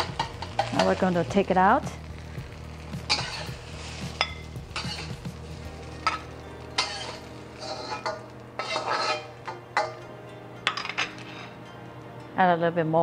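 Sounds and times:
metal spatula scraping a wok: 0.0 - 1.4, 2.5 - 10.0, 10.7 - 11.6
light sizzle: 0.0 - 13.0.

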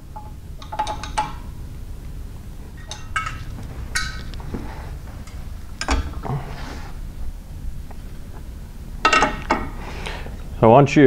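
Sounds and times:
steel tools clinking on metal: 0.2 - 1.5, 2.8 - 4.4.

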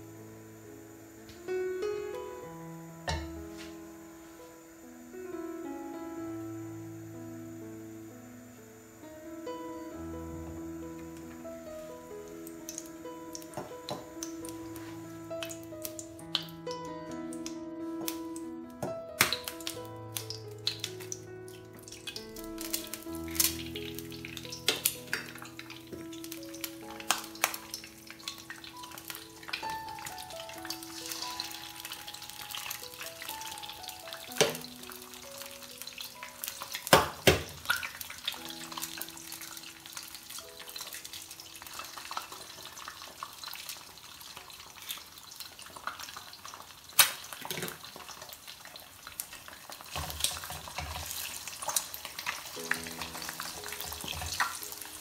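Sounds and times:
eggs sizzling in oil: 0.0 - 55.0
eggs cracking with sharp knocks: 18.8 - 21.1, 47.0 - 47.8.

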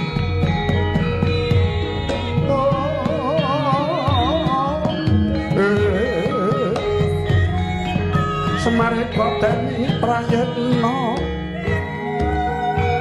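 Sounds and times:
hand drum strokes: 0.0 - 13.0
person singing with heavy vibrato: 2.4 - 7.3, 8.5 - 12.7.

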